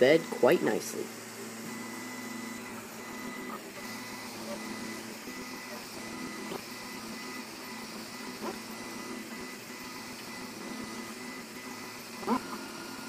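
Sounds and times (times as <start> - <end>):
printer machine hum: 0.0 - 13.0.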